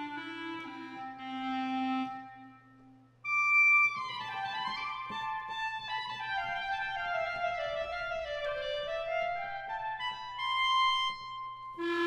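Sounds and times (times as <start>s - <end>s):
solo clarinet playing legato: 0.0s - 5.7s, 11.8s - 12.0s.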